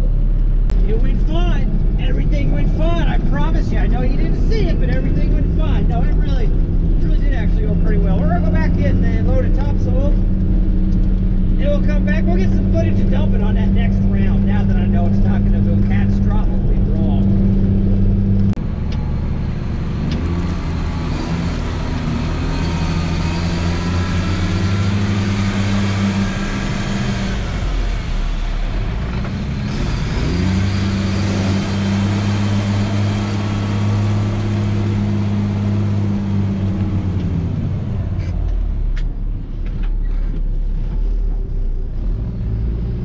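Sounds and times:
truck engine pulling through mud: 7.5 - 38.9.

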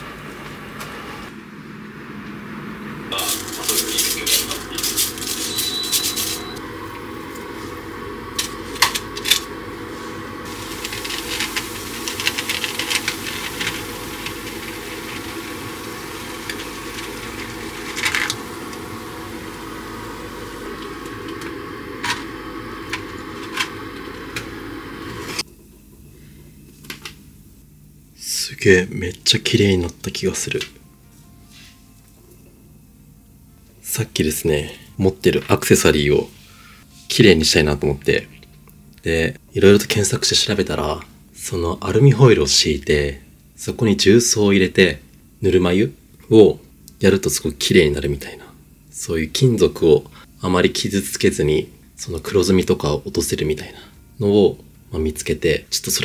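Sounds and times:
water pouring: 10.4 - 21.6.

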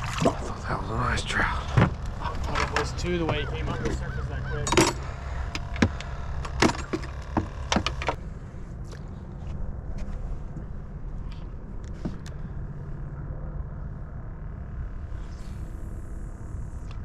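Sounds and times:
low steady rumble: 0.0 - 17.0
fishing gear knocking and clattering: 1.7 - 8.2.

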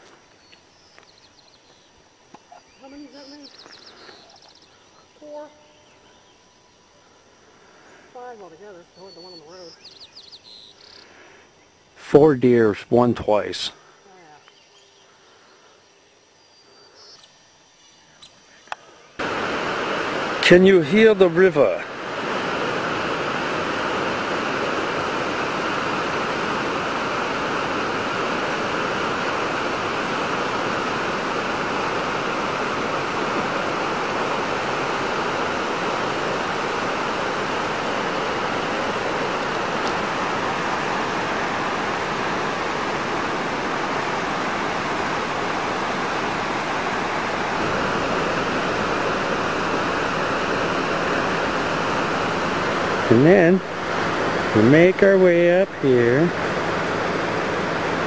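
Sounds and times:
river water rushing: 19.2 - 58.0.

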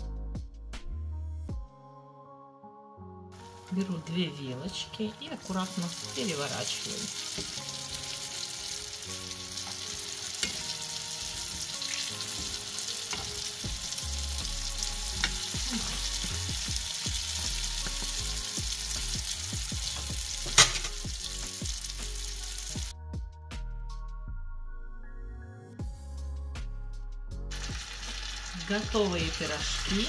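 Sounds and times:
oil sizzling and crackling: 3.4 - 22.9, 27.5 - 30.0.

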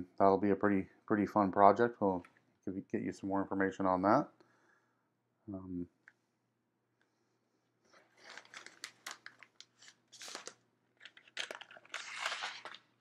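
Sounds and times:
foil bag crinkling: 8.2 - 13.0.

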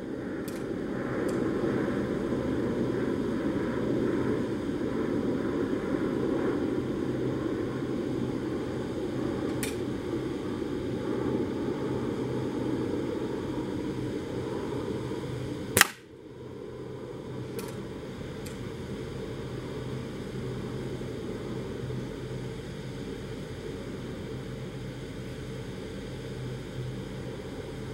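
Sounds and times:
air rifle shot: 15.8 - 16.1.

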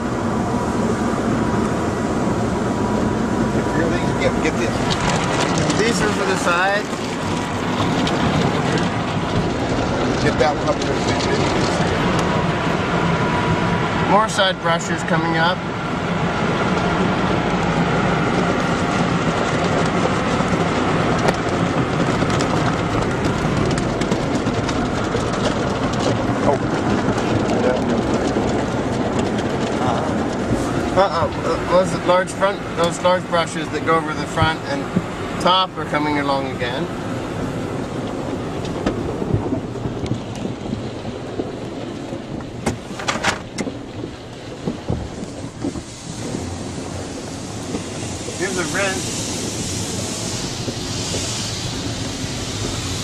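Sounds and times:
car wash brushes and water spray: 0.0 - 53.0
water spray: 45.7 - 53.0.

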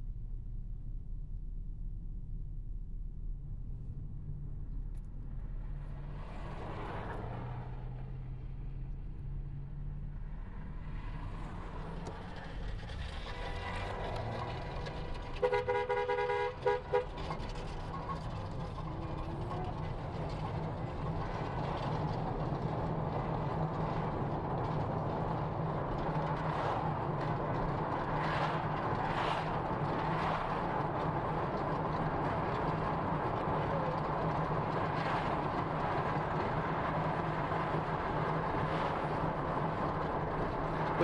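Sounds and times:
low hum: 0.0 - 13.6
car road and engine noise: 0.0 - 41.0.

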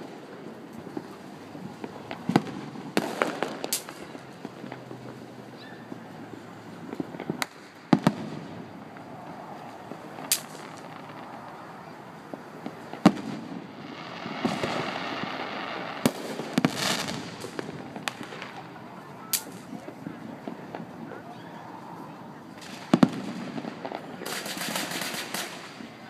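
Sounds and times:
firework shells bursting: 2.1 - 4.9, 7.0 - 18.6, 19.3 - 19.8, 22.6 - 25.9.

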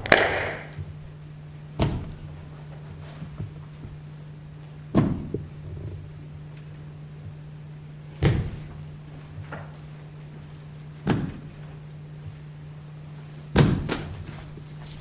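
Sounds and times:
heavy thumps: 0.0 - 1.0
steady low hum: 0.0 - 15.0.

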